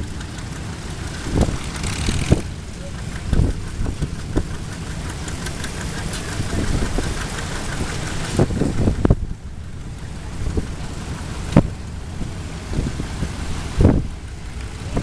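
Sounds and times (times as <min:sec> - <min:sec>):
tractor engines chugging: 0:00.0 - 0:15.0.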